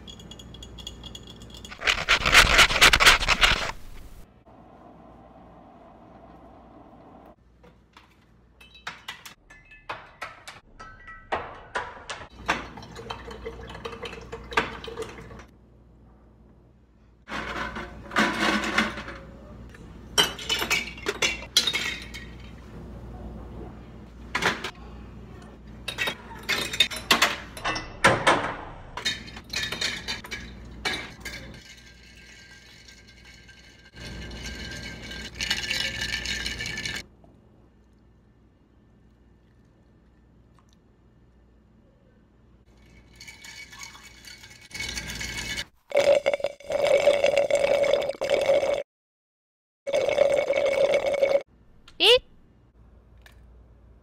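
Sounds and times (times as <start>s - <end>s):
glass jar and ice clinking: 0.0s - 2.2s, 29.0s - 37.0s, 42.7s - 48.7s
kitchen noise: 0.0s - 4.3s, 7.7s - 15.5s, 17.2s - 22.8s, 25.7s - 37.0s, 42.6s - 46.1s.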